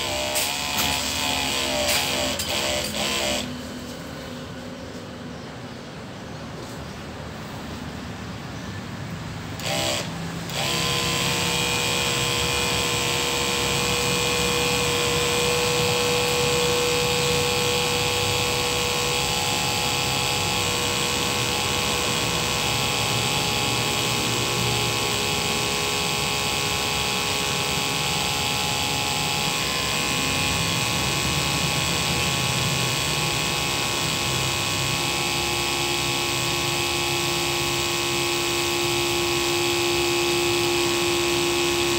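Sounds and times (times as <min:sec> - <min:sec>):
electric sprayer pump humming: 0:00.0 - 0:04.0, 0:09.5 - 0:41.9.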